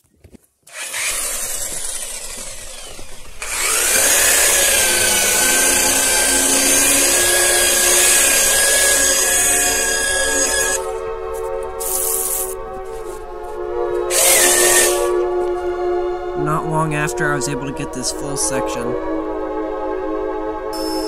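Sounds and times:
angle grinder whining: 0.7 - 11.1, 14.0 - 15.6, 20.8 - 21.0.

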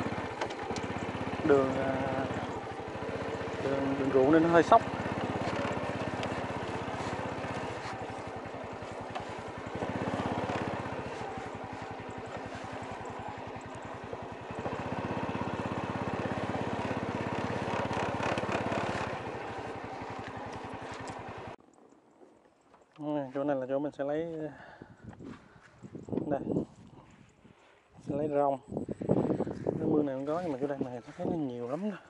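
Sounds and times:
motorbike engine running: 0.0 - 21.6, 28.8 - 32.0.

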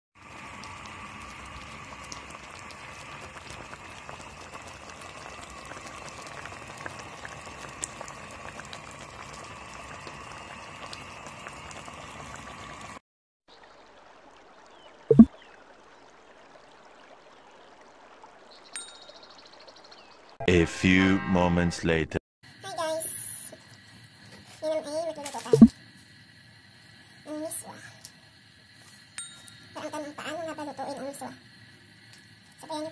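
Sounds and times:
soup bubbling and popping: 0.2 - 13.0, 13.6 - 19.4.

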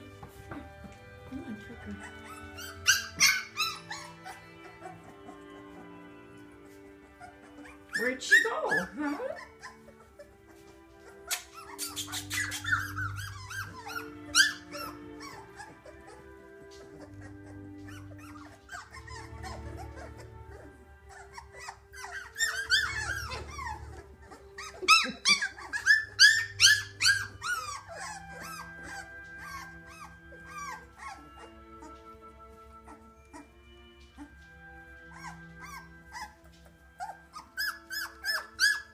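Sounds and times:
soft background music: 0.0 - 38.9
puppies squealing and whimpering: 1.0 - 38.9.

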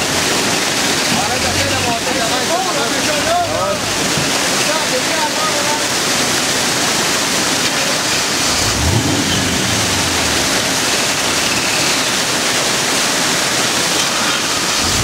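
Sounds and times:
water rushing over rocks: 0.0 - 15.0
low rumble: 8.4 - 11.7.

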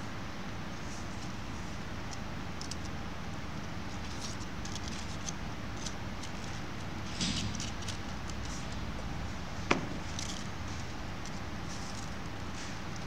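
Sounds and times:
steady low hum: 0.0 - 13.0
crinkling of crepe paper: 3.9 - 6.7.

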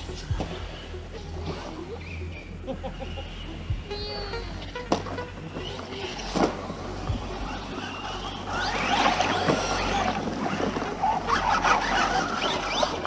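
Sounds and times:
radio-controlled cars driving: 0.0 - 13.0
tyres crackling through leaves: 0.0 - 13.0.

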